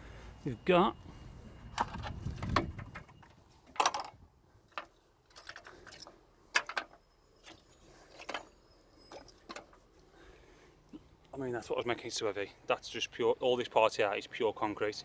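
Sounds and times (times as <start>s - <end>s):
clicks and rattles in metal casing: 1.8s - 7.0s.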